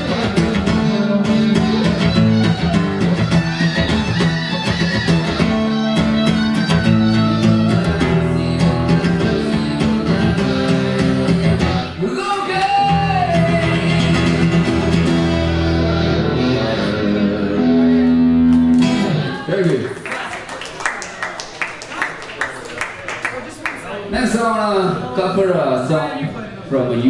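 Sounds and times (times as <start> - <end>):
electric and acoustic guitars: 0.0 - 19.9.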